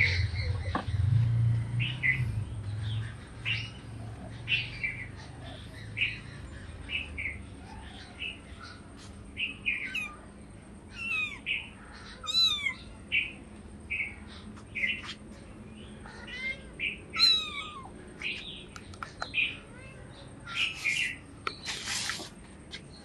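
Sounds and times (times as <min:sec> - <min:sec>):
small birds chirping: 0:00.0 - 0:23.0
kitten meowing: 0:09.9 - 0:10.2, 0:11.0 - 0:11.5, 0:12.2 - 0:12.8, 0:16.1 - 0:17.9.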